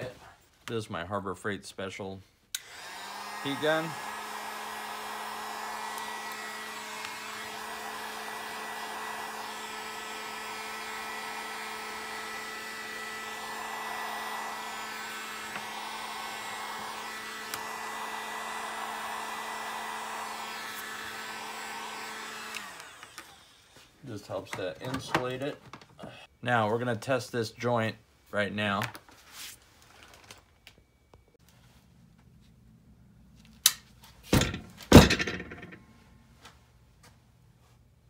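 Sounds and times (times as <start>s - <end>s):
heat gun fan humming: 2.5s - 25.4s.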